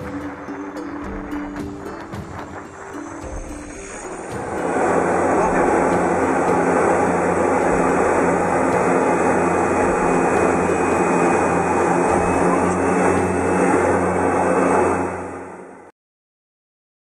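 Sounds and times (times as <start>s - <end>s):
airplane engine drone in cabin: 0.0s - 15.9s
air rushing: 2.2s - 15.4s.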